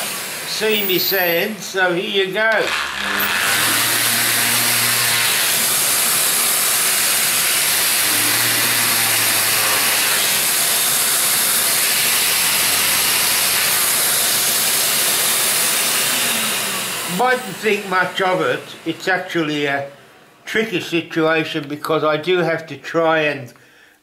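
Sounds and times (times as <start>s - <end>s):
electric sander whirring: 0.0s - 19.1s.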